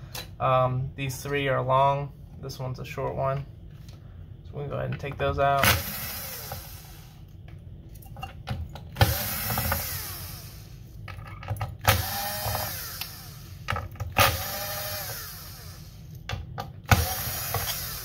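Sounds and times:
cordless drill motor whining: 0:05.6 - 0:07.2, 0:09.0 - 0:10.8, 0:11.8 - 0:16.2, 0:16.9 - 0:18.0.

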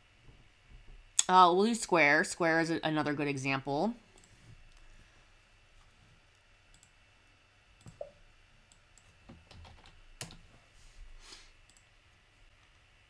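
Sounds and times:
computer mouse clicks: 0:06.7 - 0:07.0, 0:07.8 - 0:10.4, 0:11.7 - 0:11.9.

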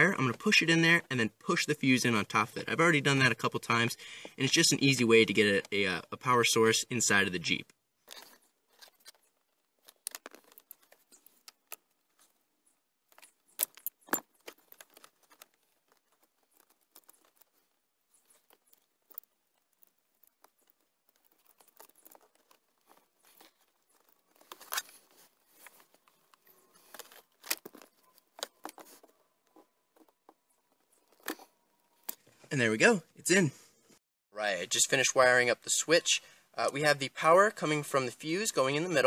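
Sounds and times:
small clicks and rattles of hands: 0:07.7 - 0:32.2.

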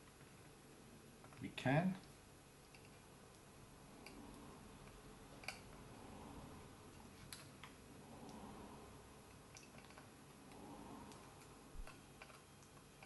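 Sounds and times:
small metal clicks: 0:02.6 - 0:03.4.

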